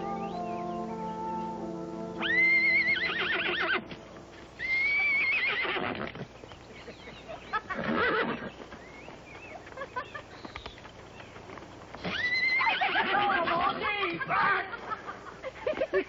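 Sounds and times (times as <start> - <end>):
horse whinnying: 2.2 - 3.9, 4.6 - 6.3, 7.8 - 8.5, 12.0 - 13.4.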